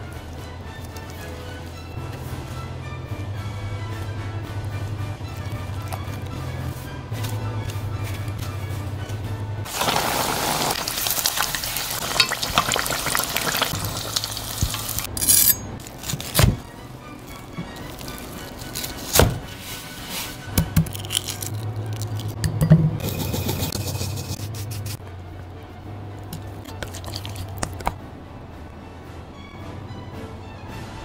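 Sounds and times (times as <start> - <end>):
background music: 0.0 - 31.0
deep-frying sizzle in hot oil: 9.7 - 15.1.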